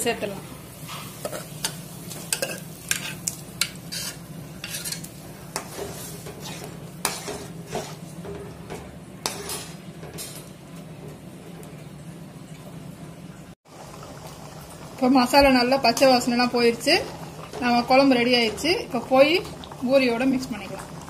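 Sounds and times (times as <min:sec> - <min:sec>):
metal spoon scraping a pan: 0:00.9 - 0:10.4.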